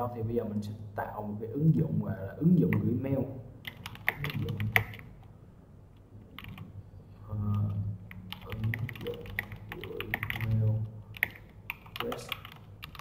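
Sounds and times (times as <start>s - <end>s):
keyboard typing: 3.6s - 5.1s, 6.2s - 6.7s, 7.5s - 13.0s.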